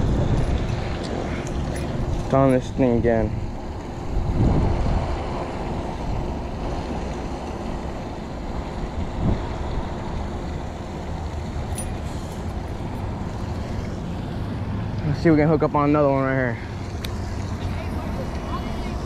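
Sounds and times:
wind buffeting microphone: 0.0s - 14.9s.

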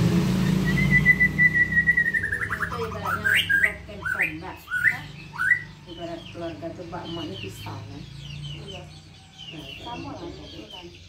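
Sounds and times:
bird singing whistled phrases: 0.4s - 5.9s.

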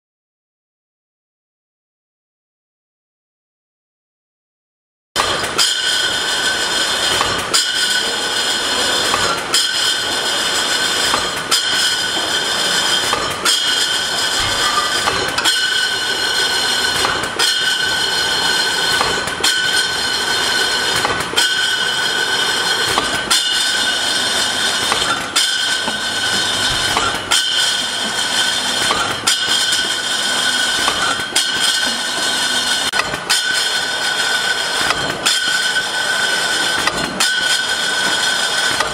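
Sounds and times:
labelling machine whine: 5.2s - 38.9s
machine knocking: 5.2s - 38.9s
glass bottles clinking: 5.6s - 38.5s.

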